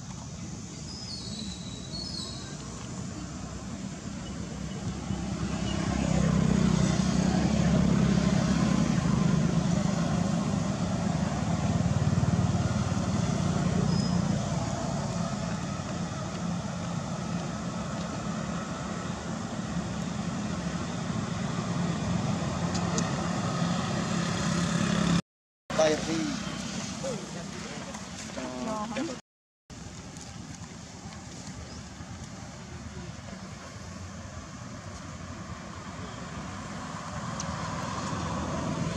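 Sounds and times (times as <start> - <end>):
road traffic passing: 0.0 - 38.9.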